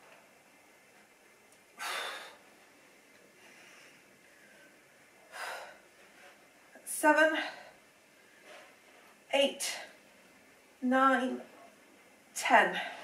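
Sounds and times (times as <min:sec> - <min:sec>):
faint breathing: 0:01.8 - 0:02.6, 0:03.3 - 0:06.4.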